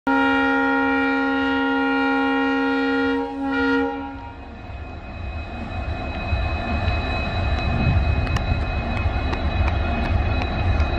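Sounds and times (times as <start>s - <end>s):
locomotive horn blast: 0.1s - 4.4s
low rumble of approaching train: 0.1s - 10.9s.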